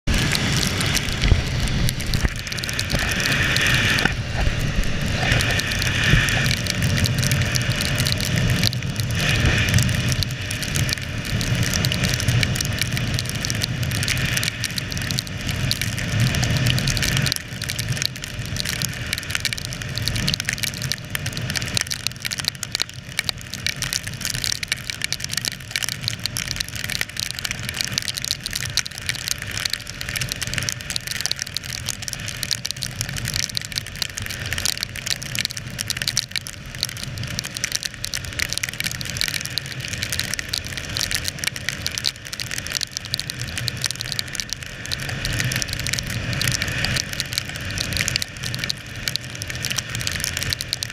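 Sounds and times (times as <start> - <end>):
wind rush: 0.1 - 9.8
tyre hiss on wet road: 0.1 - 22.7.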